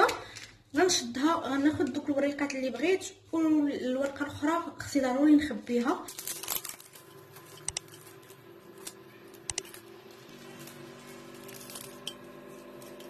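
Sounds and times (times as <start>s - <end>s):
plastic film rustling: 5.7s - 13.0s
sharp clicks: 8.8s - 9.7s.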